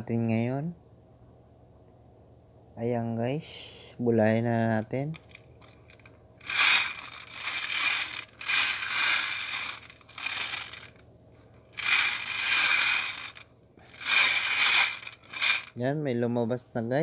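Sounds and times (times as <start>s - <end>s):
bingo balls rattling in cage: 5.2s - 11.0s, 11.8s - 15.7s.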